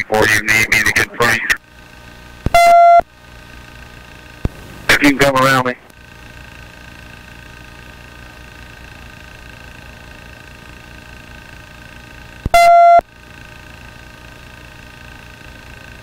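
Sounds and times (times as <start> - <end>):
radio feed hum: 0.0 - 14.6
loud electronic beep: 2.5 - 3.0, 12.6 - 13.0.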